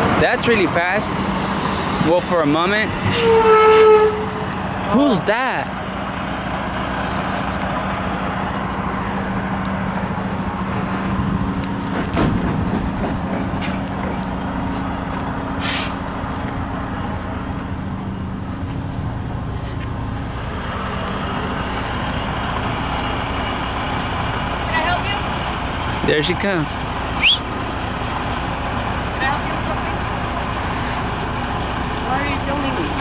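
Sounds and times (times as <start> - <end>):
diesel truck engine running: 0.0 - 33.0
air brake hiss: 15.6 - 16.0, 30.5 - 31.1.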